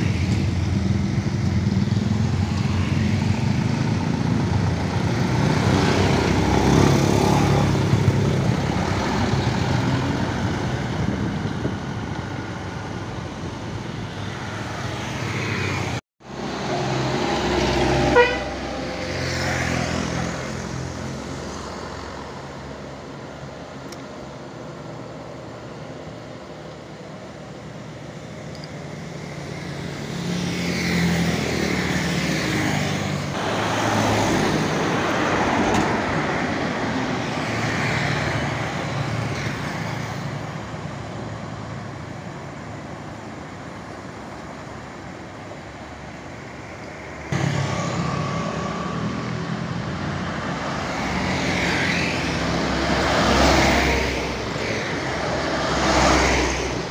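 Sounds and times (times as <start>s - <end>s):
motorbikes passing: 0.0s - 25.6s, 27.2s - 44.0s, 44.7s - 56.9s
trucks passing: 0.0s - 56.9s
car passing: 14.4s - 23.0s, 45.6s - 56.9s.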